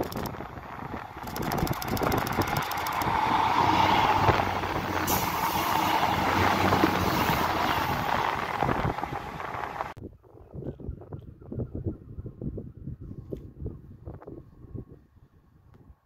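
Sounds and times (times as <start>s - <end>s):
train wheels rumbling on rails: 0.0s - 10.0s
diesel train passing: 0.3s - 10.0s.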